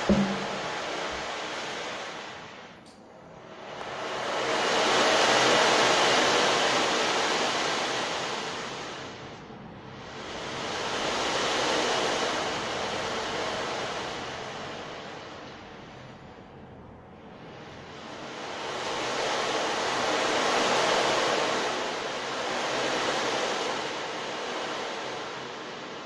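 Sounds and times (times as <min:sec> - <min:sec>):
waves breaking and washing out: 0:00.0 - 0:02.8, 0:03.4 - 0:16.3, 0:17.2 - 0:26.0.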